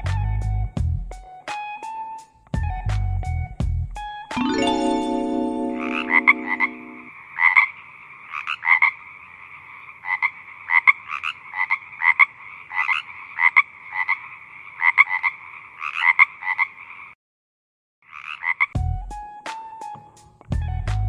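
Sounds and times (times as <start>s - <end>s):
frog chorus: 7.2s - 17.2s, 18.1s - 18.7s
frogs croaking: 7.2s - 17.2s.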